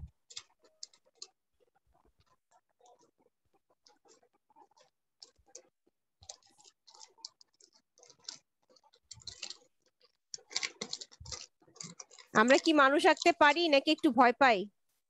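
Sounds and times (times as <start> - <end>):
faint irregular clicking: 3.8 - 14.1.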